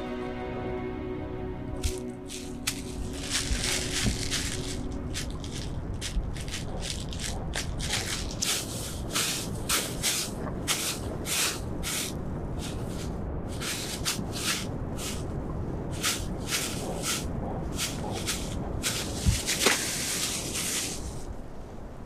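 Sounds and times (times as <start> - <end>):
soft background music: 0.0 - 20.9
crunching and rustling: 1.8 - 15.3, 15.9 - 21.3.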